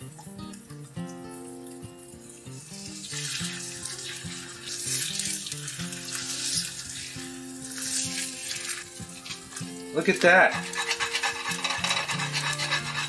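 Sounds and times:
egg sizzling in a pan: 0:00.0 - 0:13.0
spatula scraping a pan: 0:02.8 - 0:13.0.

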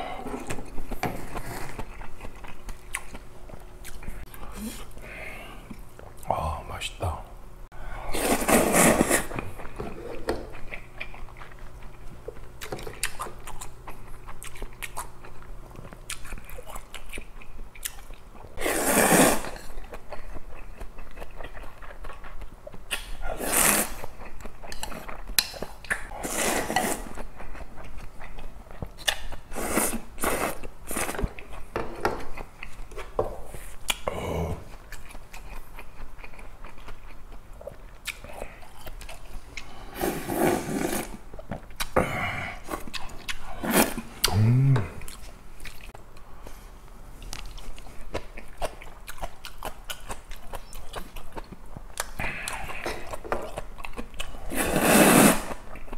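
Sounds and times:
wet chewing and smacking: 0:00.5 - 0:04.6, 0:10.4 - 0:18.6, 0:19.7 - 0:23.2, 0:27.1 - 0:29.5, 0:34.7 - 0:39.7, 0:42.7 - 0:43.6, 0:47.2 - 0:54.4
noodle slurps: 0:08.1 - 0:09.3, 0:18.6 - 0:19.6, 0:40.0 - 0:41.2, 0:54.5 - 0:55.6.

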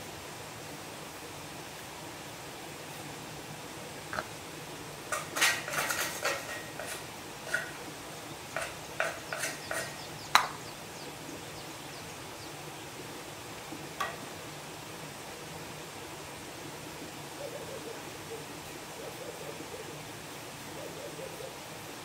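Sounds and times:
steady background hiss: 0:00.0 - 0:22.0
metal objects clinking together: 0:05.1 - 0:07.8, 0:08.5 - 0:10.6.

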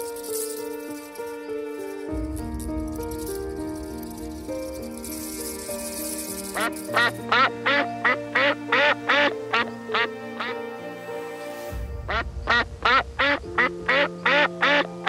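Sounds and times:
background music with held notes: 0:00.0 - 0:15.0
quacking calls: 0:06.6 - 0:10.6, 0:12.1 - 0:15.0.

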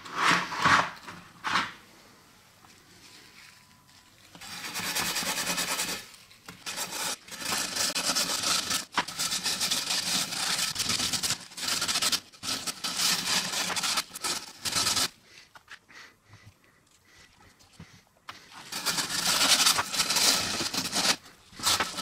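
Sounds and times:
steel wool scrubbing metal sign: 0:04.4 - 0:15.1.

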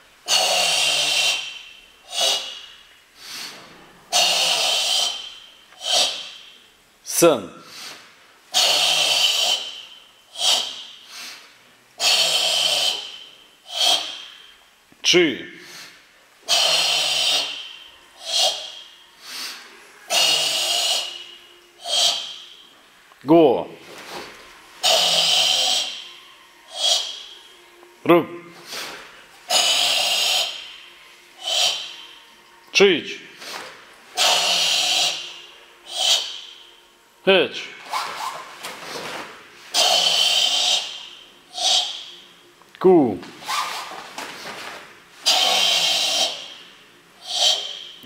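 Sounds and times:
forceful hissing exhalations: 0:00.3 - 0:06.6, 0:07.6 - 0:14.6, 0:15.6 - 0:22.6, 0:24.8 - 0:27.5, 0:28.6 - 0:32.4, 0:33.4 - 0:36.7, 0:39.6 - 0:42.2, 0:45.2 - 0:48.0
short sharp breaths: 0:00.3 - 0:14.8, 0:15.4 - 0:22.8, 0:28.5 - 0:32.5, 0:33.2 - 0:36.8, 0:43.4 - 0:48.0.

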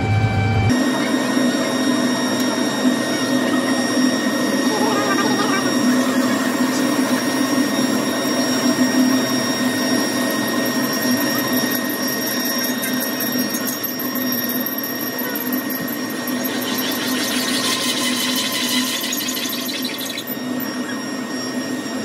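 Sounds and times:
drill press motor hum: 0:10.3 - 0:21.8
fast fine ticking: 0:15.8 - 0:20.4.

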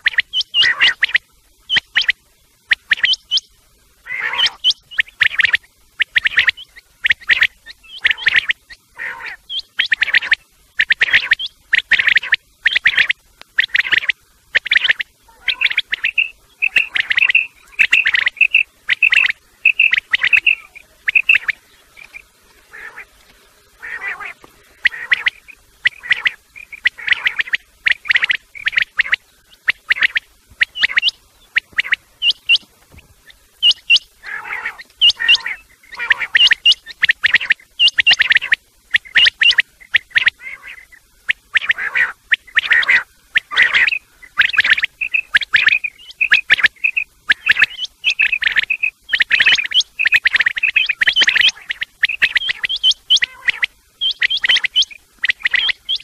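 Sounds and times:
quail calling: 0:00.0 - 0:56.0.

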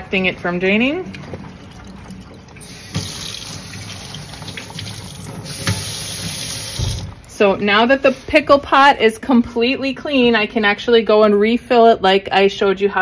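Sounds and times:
tap water splashing into sink: 0:01.1 - 0:07.3.

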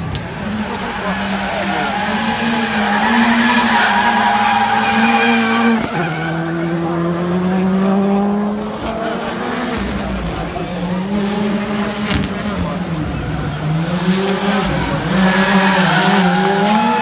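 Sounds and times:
car engine revving: 0:00.0 - 0:17.0
tyres squealing: 0:00.5 - 0:06.6.

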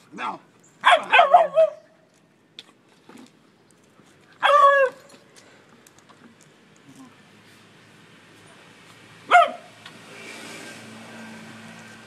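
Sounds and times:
dogs barking and yipping: 0:00.2 - 0:02.0, 0:04.4 - 0:05.2, 0:09.3 - 0:09.8.

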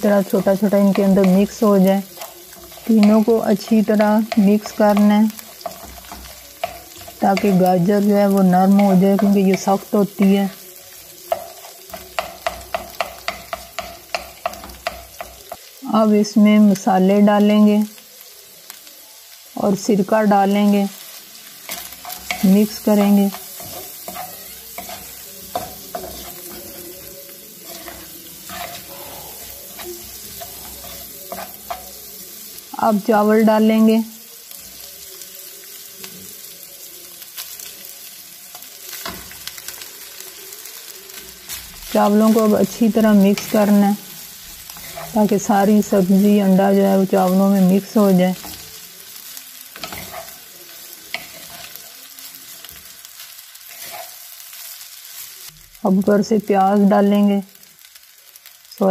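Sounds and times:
spatula scraping wok: 0:00.0 - 0:15.8, 0:20.3 - 0:33.6, 0:41.0 - 0:55.5
frying sizzle: 0:00.0 - 0:58.9.

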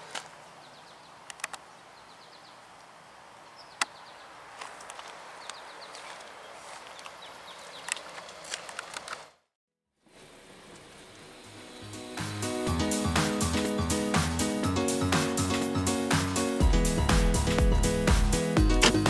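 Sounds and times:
birds chirping: 0:00.0 - 0:08.5
footsteps on gravel: 0:04.5 - 0:09.1.

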